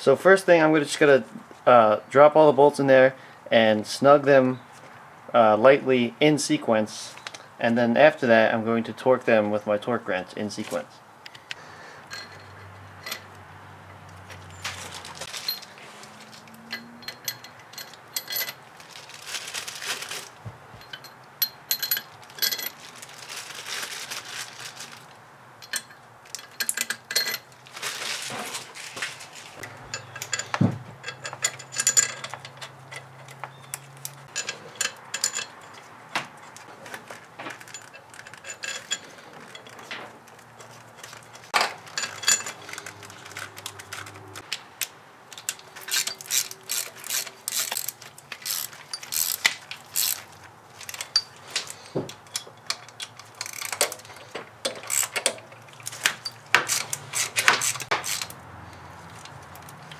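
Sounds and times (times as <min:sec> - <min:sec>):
metal clinks and knocks: 0:12.0 - 0:23.4, 0:25.6 - 0:28.0, 0:29.6 - 0:44.5, 0:45.3 - 0:59.9
hand ratchet clicking: 0:45.3 - 0:50.3, 0:52.2 - 0:58.4.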